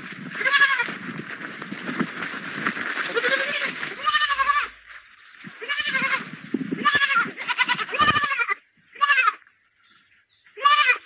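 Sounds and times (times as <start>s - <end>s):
lamb bleating: 0.4s - 0.9s, 3.1s - 4.8s, 5.6s - 9.4s, 10.6s - 11.0s.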